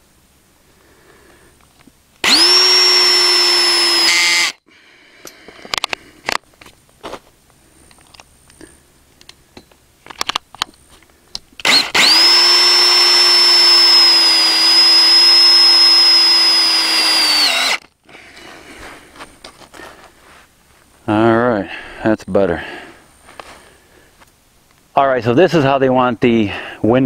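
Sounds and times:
cordless drill whining: 0:02.2 - 0:04.6, 0:11.6 - 0:17.9.

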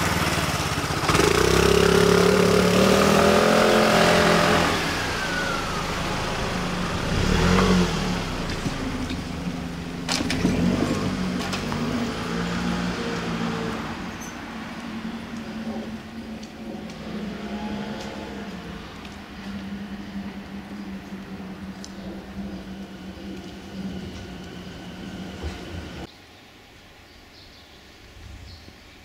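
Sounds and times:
car passing close by: 0:00.0 - 0:26.1
vehicle engine running: 0:00.0 - 0:26.1.

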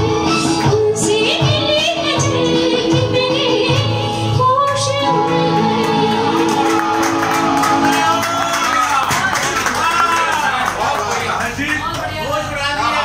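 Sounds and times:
woman singing: 0:00.0 - 0:07.0
backing music: 0:00.0 - 0:09.3.

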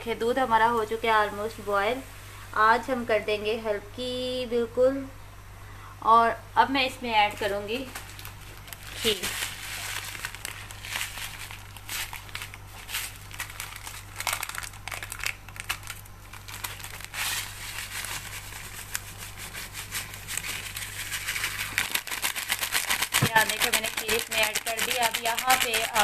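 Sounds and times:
steady low hum: 0:00.0 - 0:26.0
foil sachet crinkling: 0:07.3 - 0:26.0.

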